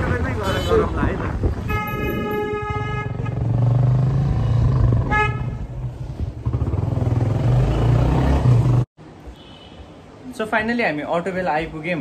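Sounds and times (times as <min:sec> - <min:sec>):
vehicle horn toot: 0:00.4 - 0:00.9, 0:01.6 - 0:03.5, 0:05.1 - 0:05.7, 0:09.3 - 0:09.9.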